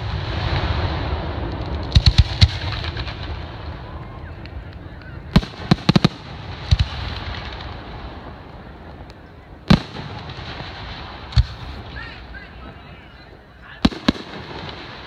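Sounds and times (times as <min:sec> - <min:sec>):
fireworks bangs: 0:00.0 - 0:15.0.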